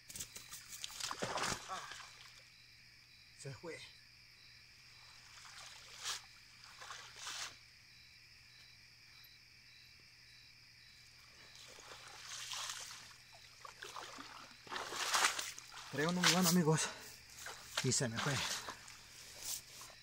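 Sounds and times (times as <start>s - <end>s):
night insects trilling: 0.0s - 20.0s
net splashing out of water: 0.6s - 2.4s, 5.3s - 7.6s, 11.6s - 19.1s.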